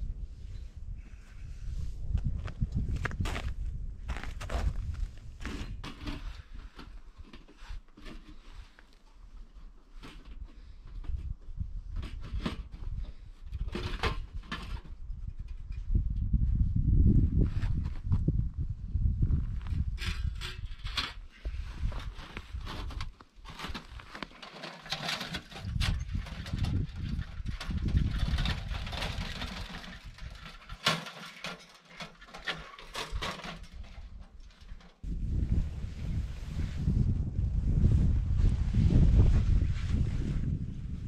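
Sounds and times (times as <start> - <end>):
wind buffeting microphone: 0.0 - 6.8, 10.4 - 23.1, 25.4 - 30.7, 35.0 - 41.0.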